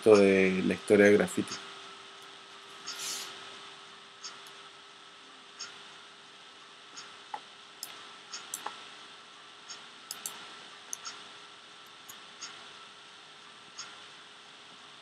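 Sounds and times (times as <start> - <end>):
faint hum: 0.0 - 15.0
steady hiss: 0.0 - 15.0
computer mouse clicking: 7.8 - 8.8, 9.7 - 11.2.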